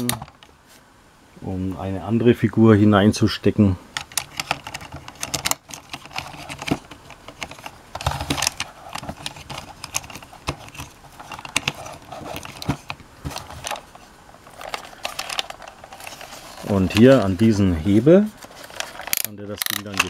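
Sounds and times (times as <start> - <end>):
plastic toy parts clicking: 4.0 - 13.8, 14.5 - 16.2, 18.7 - 20.0.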